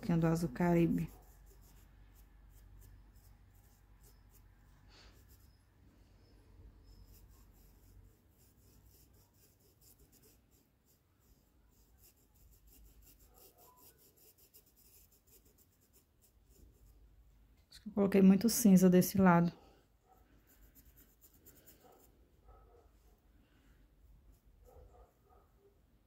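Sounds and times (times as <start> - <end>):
paintbrush scratching on fabric: 0.0 - 5.7, 6.8 - 17.1, 20.1 - 23.2.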